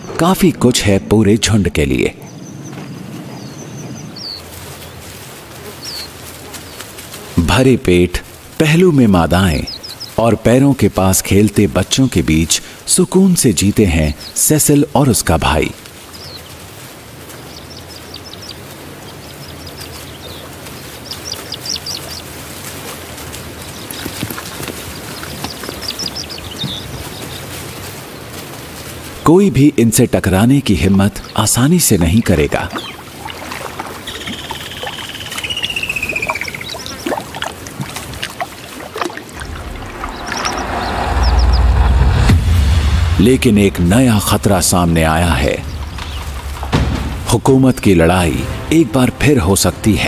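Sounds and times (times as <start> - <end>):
birds chirping: 0.0 - 50.0
lion lapping water: 32.7 - 40.6
short high bird chirps: 34.0 - 37.1, 39.5 - 41.9.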